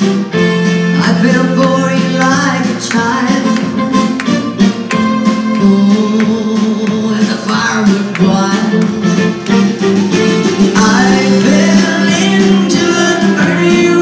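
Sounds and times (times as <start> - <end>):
live band playing: 0.0 - 14.0.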